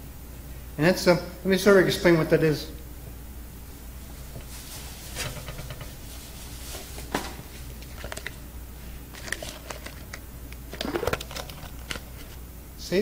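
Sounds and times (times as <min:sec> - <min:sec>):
low room hum: 0:00.0 - 0:13.0
objects being handled: 0:04.2 - 0:08.4, 0:09.1 - 0:12.4.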